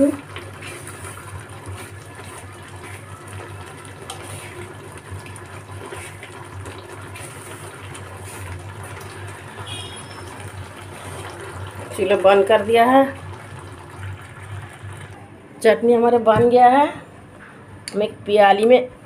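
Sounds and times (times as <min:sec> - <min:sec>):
spatula stirring: 0:00.0 - 0:09.3
thick syrup bubbling: 0:00.0 - 0:15.3.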